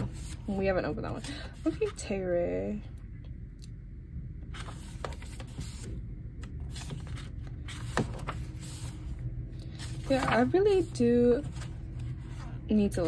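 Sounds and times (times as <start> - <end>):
low steady hum: 0.0 - 13.0
paper pages rustling: 4.5 - 12.6.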